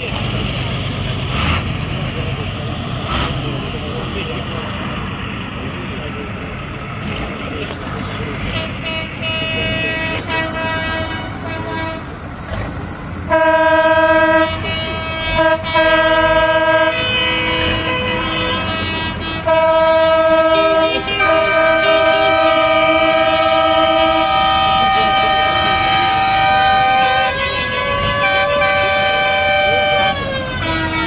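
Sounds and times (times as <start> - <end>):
low rumble of engines: 0.0 - 31.0
tractor horns blasting: 8.2 - 31.0.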